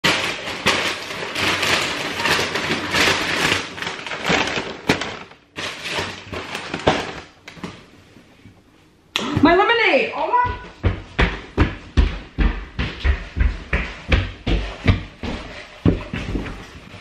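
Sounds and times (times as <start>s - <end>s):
paper bag rustling: 0.0s - 7.9s.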